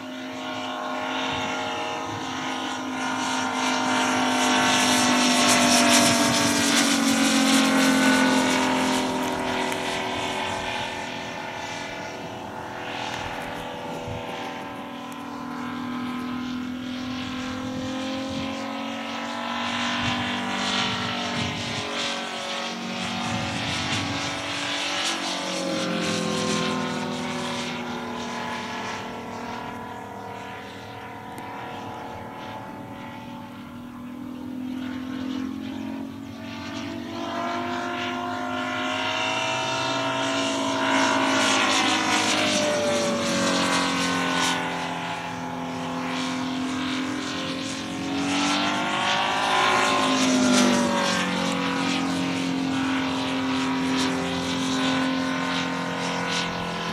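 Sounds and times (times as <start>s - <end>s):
propeller plane engine in flight: 0.0s - 56.9s.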